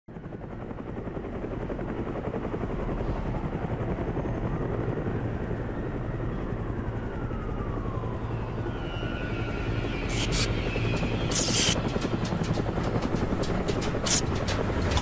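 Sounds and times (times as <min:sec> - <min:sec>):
low mechanical rumble with flutter: 0:00.3 - 0:15.0
faint falling whine: 0:07.2 - 0:14.8.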